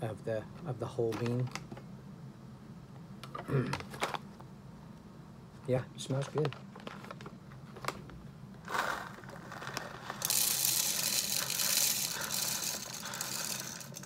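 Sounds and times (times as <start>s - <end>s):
coffee beans pouring into hopper: 8.6s - 14.0s
coffee bag crinkling: 8.7s - 14.0s.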